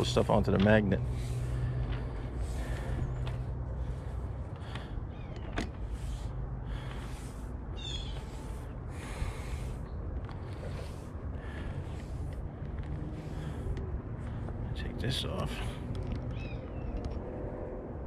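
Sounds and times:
steady low rumble: 0.0 - 18.0
chirping animal call: 7.8 - 8.4.

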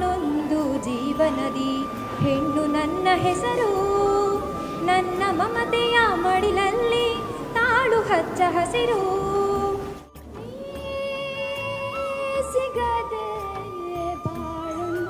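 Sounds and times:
woman singing: 0.0 - 15.0.

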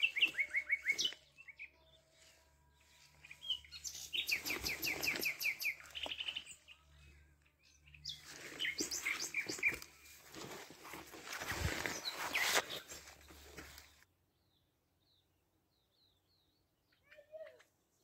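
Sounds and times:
nightingale singing: 0.0 - 10.6.

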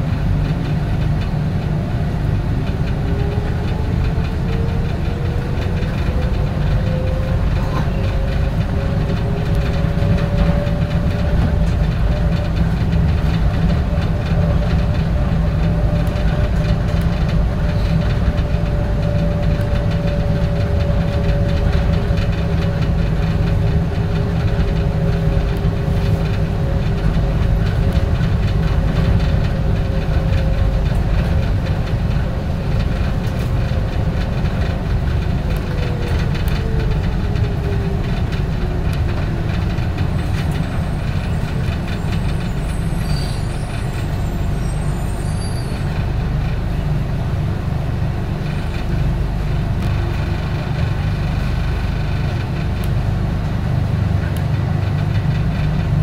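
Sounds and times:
rail car rumbling on guideway: 0.0 - 56.0.

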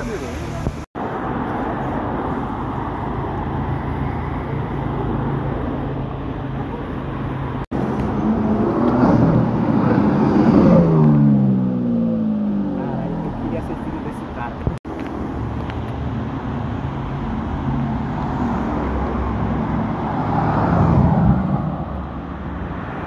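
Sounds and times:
street traffic noise: 0.0 - 23.0
car passing by: 7.6 - 14.2, 17.0 - 23.0.

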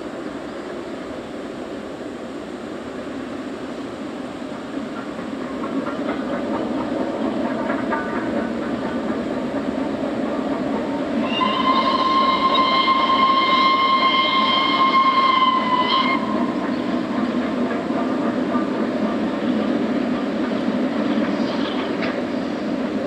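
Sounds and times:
train moving: 0.0 - 23.0
steam locomotive whistle: 11.2 - 16.9.

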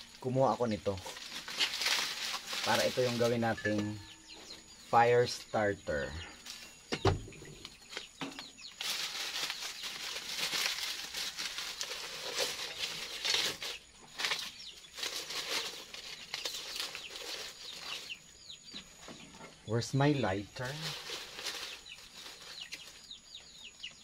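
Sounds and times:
dry husks rustling and crackling: 0.0 - 5.4, 6.0 - 24.0
thump: 6.9 - 7.4.

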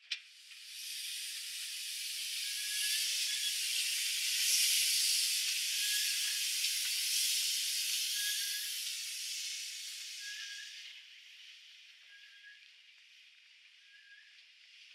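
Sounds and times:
steam locomotive hissing: 0.4 - 11.1.

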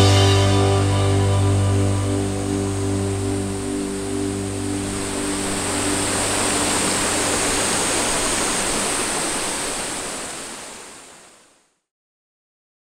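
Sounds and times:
background music: 0.0 - 7.1
stream water rushing: 1.4 - 11.6.

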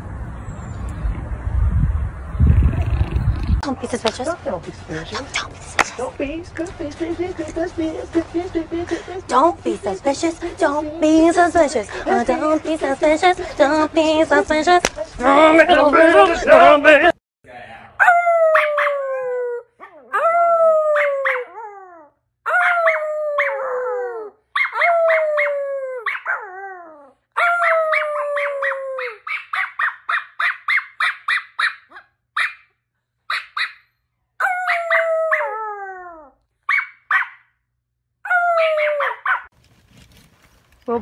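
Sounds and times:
dog yipping: 18.0 - 19.2, 19.8 - 21.6, 22.5 - 23.7, 24.6 - 32.7, 33.3 - 35.6, 36.6 - 37.5, 38.2 - 39.5
small dog howling: 18.0 - 29.4, 34.4 - 36.4, 38.3 - 39.5.

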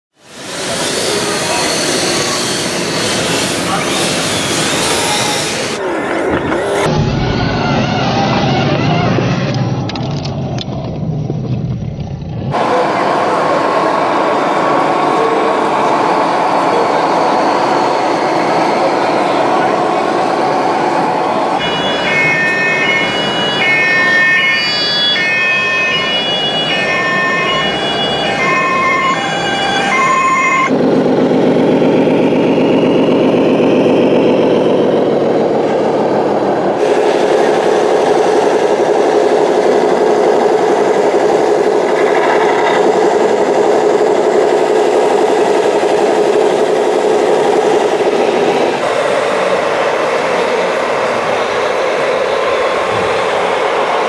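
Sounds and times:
rc truck engine drone: 0.1 - 54.0
held whine: 0.3 - 54.0
toy police siren: 21.6 - 30.7.

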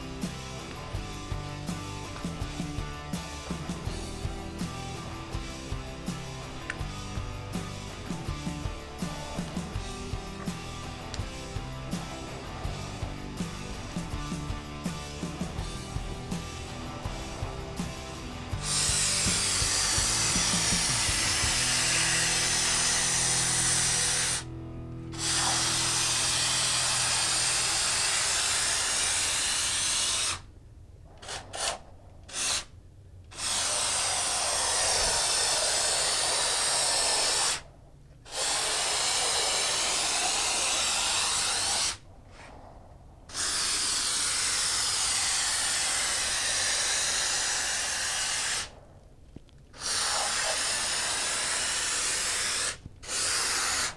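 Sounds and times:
spray foam gun hissing: 8.0 - 24.5, 25.2 - 30.5, 31.2 - 32.7, 33.3 - 37.6, 38.3 - 42.0, 43.3 - 48.8, 49.8 - 53.9.

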